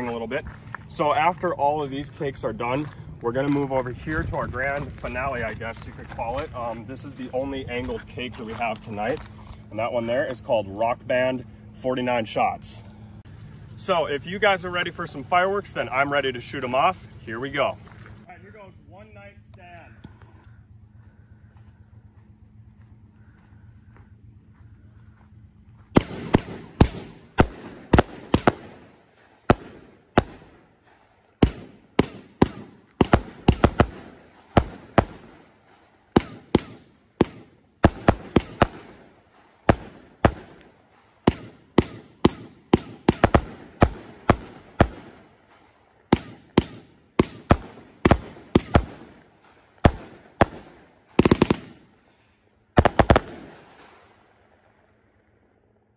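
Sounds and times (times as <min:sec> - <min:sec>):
fireworks launching and bursting: 0:25.9 - 0:52.0, 0:52.7 - 0:54.1.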